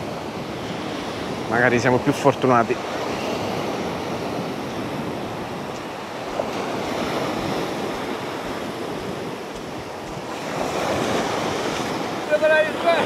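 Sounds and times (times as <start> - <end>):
surf breaking on beach: 0.0 - 13.0
wind buffeting microphone: 0.0 - 13.0.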